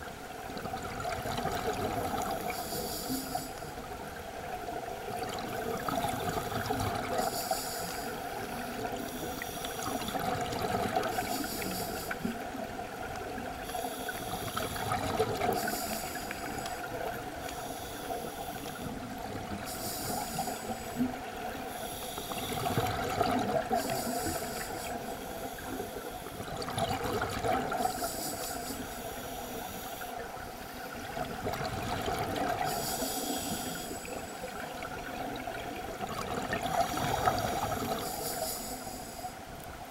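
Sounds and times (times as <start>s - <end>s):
scuba regulator hissing inhalation: 2.2s - 3.7s, 5.6s - 10.3s, 11.0s - 12.4s, 13.6s - 18.9s, 19.6s - 26.4s, 27.7s - 30.3s, 32.6s - 34.6s, 36.8s - 39.4s.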